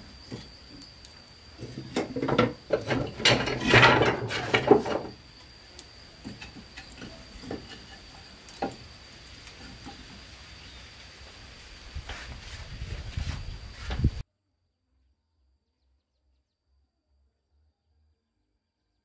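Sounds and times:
small clicks and knocks from fire: 0.0s - 10.7s
firewood scraping and clattering: 0.2s - 5.4s, 6.2s - 10.6s, 11.3s - 14.2s.

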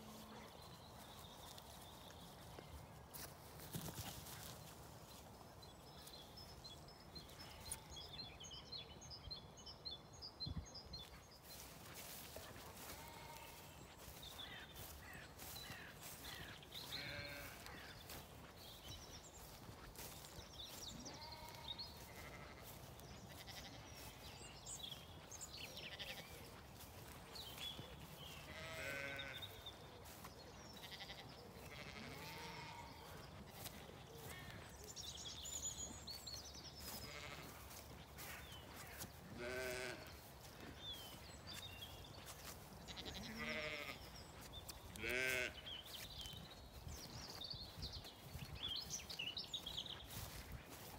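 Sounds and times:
distant sheep bleating: 12.8s - 13.7s, 16.8s - 17.9s, 21.0s - 24.2s, 25.9s - 26.4s, 28.4s - 30.2s, 30.8s - 34.6s, 37.1s - 37.7s, 39.4s - 40.3s, 42.9s - 44.1s, 45.0s - 45.7s.

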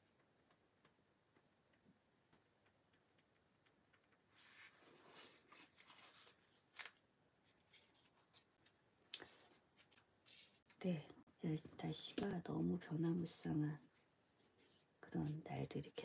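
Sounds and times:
soft paper rustling: 4.0s - 10.9s, 11.8s - 16.0s
pen strokes on paper: 12.5s - 15.9s.

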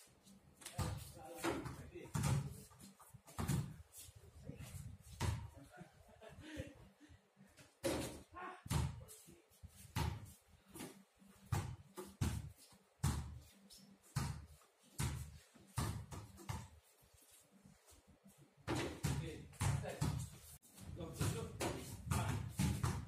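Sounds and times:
basketballs bouncing on pavement: 0.8s - 3.8s, 9.8s - 16.9s, 18.7s - 23.0s.

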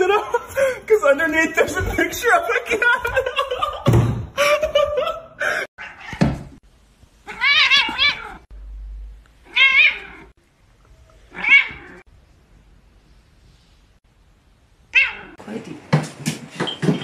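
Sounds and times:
cat yowling meows: 7.3s - 8.5s, 9.5s - 10.3s, 11.3s - 12.0s, 14.9s - 15.4s.

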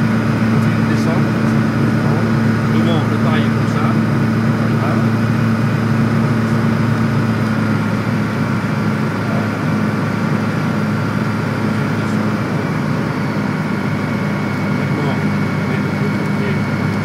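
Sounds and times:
light aircraft engine droning: 0.0s - 17.0s.

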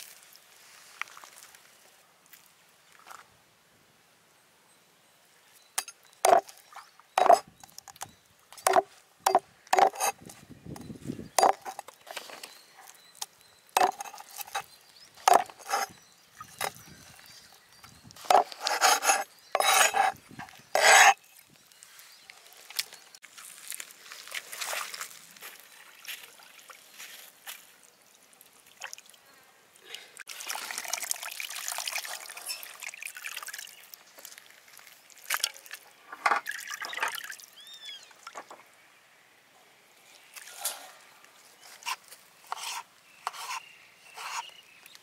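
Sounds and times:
knife scraping board: 8.7s - 10.2s, 15.3s - 16.0s, 18.2s - 21.2s, 41.8s - 44.5s.

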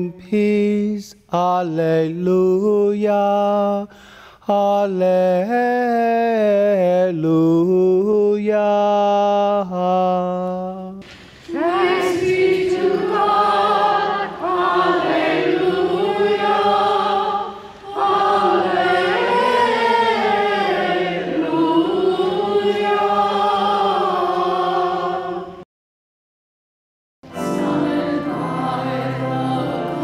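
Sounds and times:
group of voices singing: 11.0s - 25.6s, 27.3s - 30.0s.

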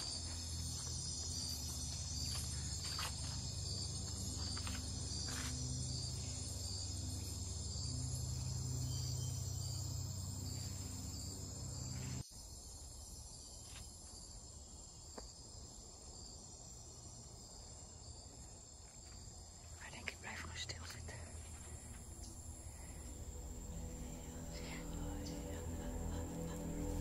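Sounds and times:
low background music drone: 0.0s - 12.2s, 21.7s - 27.0s
high-pitched forest insects: 0.0s - 27.0s.

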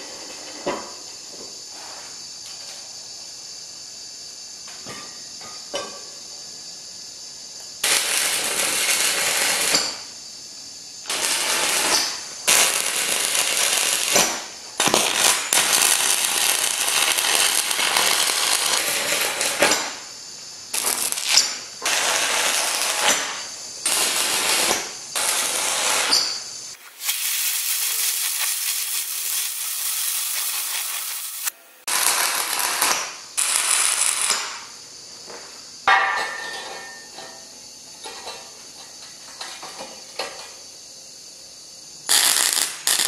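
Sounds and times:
welding arc crackling and hissing: 7.8s - 10.1s, 11.0s - 20.1s, 20.7s - 34.7s, 42.1s - 43.0s.

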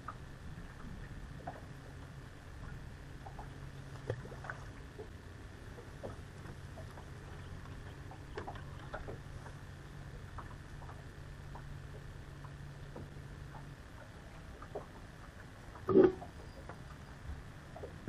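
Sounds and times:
steady low hum: 0.0s - 18.0s
boat gear clicks and taps: 6.0s - 9.6s.

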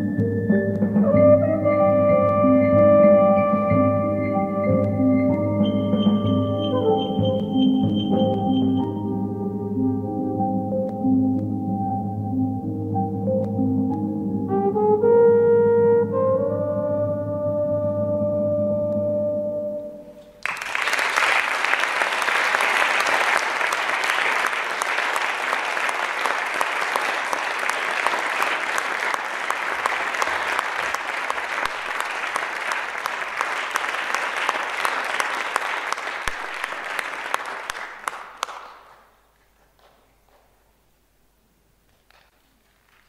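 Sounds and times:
audience applause: 20.4s - 39.1s.

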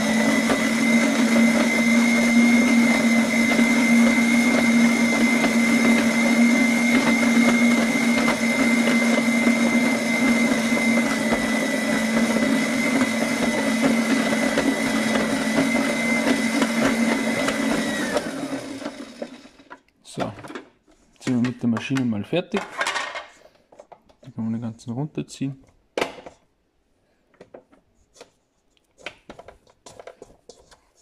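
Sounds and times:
stand mixer motor whining: 0.0s - 19.9s.

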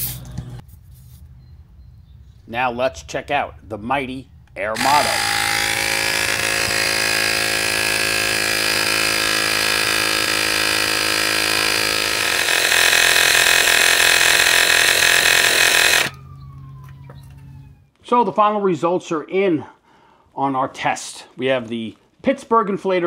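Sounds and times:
electric tire inflator droning: 4.7s - 16.4s.

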